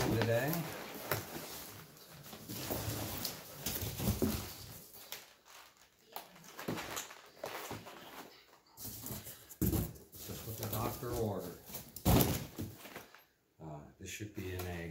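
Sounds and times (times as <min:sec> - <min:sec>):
cardboard rustling and scraping: 0:00.0 - 0:05.8.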